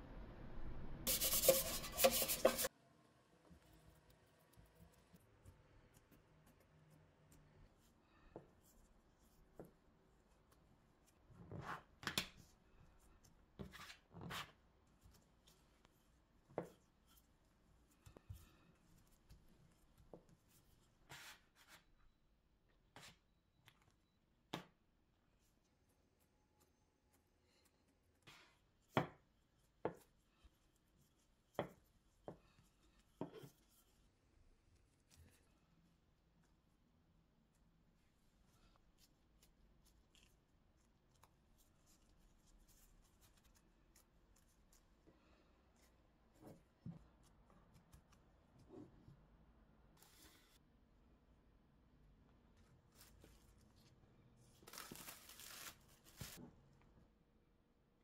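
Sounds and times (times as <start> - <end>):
soft rubbing swishes of dough: 1.1 - 2.7, 4.4 - 22.0.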